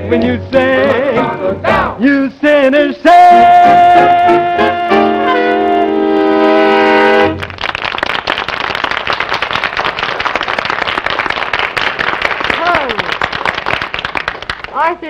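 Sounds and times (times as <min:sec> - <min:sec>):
big band and man singing: 0:00.0 - 0:05.0
audience applauding: 0:06.9 - 0:15.0.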